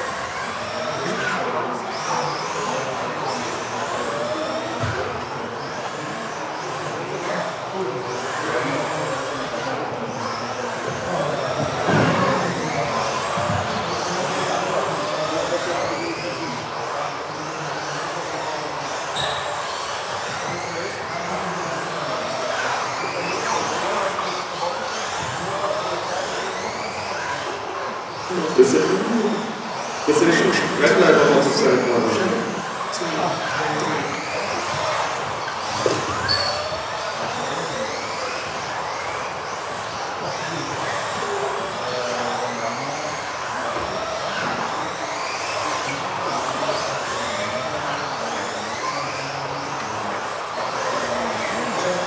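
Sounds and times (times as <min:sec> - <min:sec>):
electric toy car motors whining: 0:00.0 - 0:52.0.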